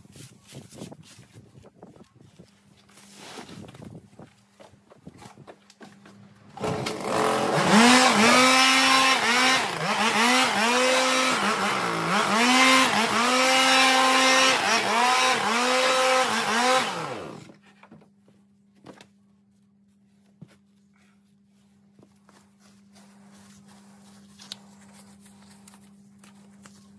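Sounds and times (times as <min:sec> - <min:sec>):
leaf blower running: 0:06.5 - 0:17.6.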